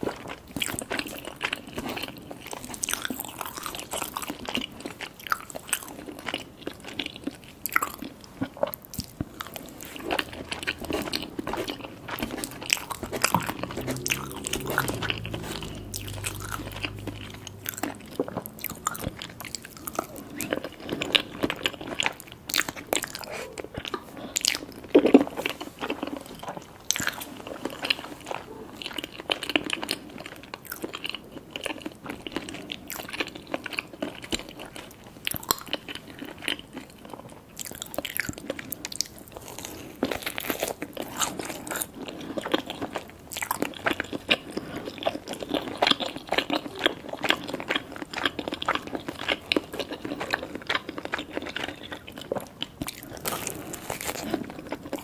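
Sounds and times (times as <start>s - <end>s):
person biting and chewing: 37.6s - 55.0s.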